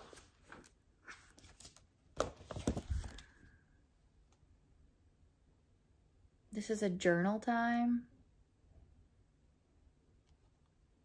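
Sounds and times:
pages rustling in ring binder: 0:00.0 - 0:03.5.

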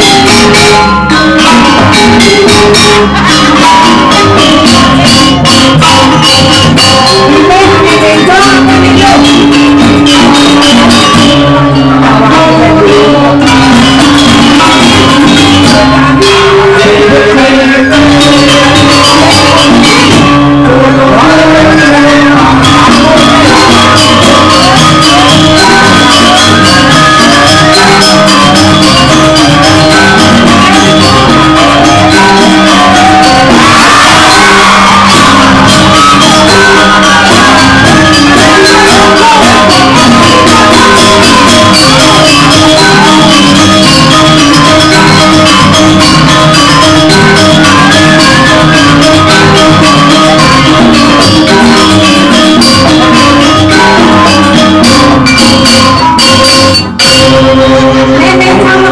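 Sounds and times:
fast percussion music: 0:00.0 - 0:58.9
person shouting and singing: 0:00.0 - 0:58.9.

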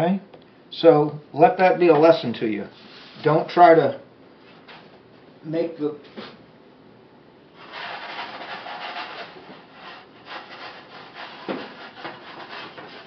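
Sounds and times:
dough scraping on a pan: 0:07.6 - 0:13.0.

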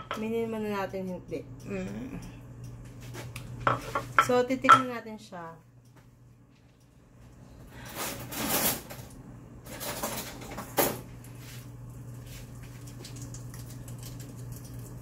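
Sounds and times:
steady low hum: 0:00.0 - 0:15.0
clattering objects: 0:09.7 - 0:11.0.

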